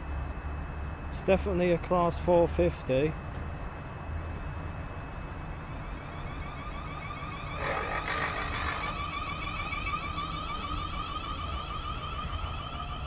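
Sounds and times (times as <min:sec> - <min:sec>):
train rising whine: 0:04.2 - 0:13.0
train pulsing high tone: 0:04.4 - 0:13.0.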